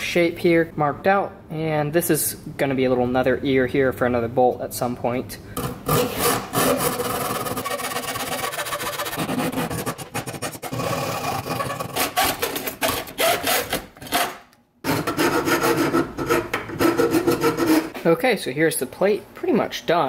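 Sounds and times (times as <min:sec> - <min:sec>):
hacksaw cutting metal: 0:05.6 - 0:18.0.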